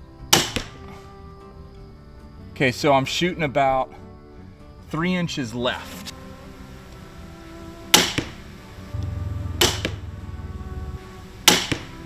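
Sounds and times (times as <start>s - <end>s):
crossbow shot crack: 9.0s - 10.4s.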